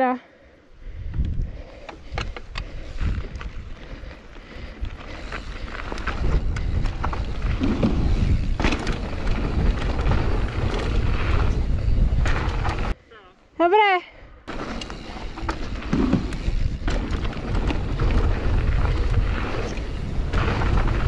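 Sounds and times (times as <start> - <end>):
wind buffeting microphone: 0.8 - 13.0, 14.5 - 21.0
mountain bike rumbling and rattling: 0.9 - 13.0, 14.5 - 21.0
bike clicking over bumps: 1.0 - 13.0, 14.5 - 21.0.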